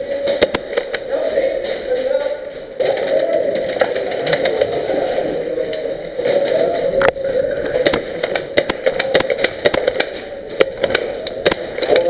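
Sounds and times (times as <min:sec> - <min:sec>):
airsoft gunfire cracks: 0:00.3 - 0:01.0, 0:07.8 - 0:12.0
bb impacts: 0:06.1 - 0:12.0.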